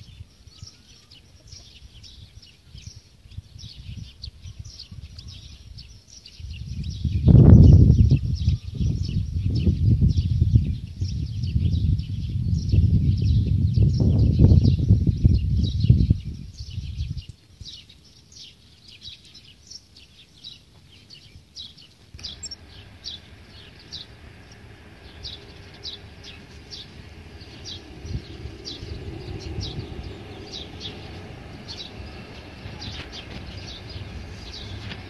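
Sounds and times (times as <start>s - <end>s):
small songbirds chirping: 0.0s - 35.0s
low steady rumble: 22.1s - 35.0s.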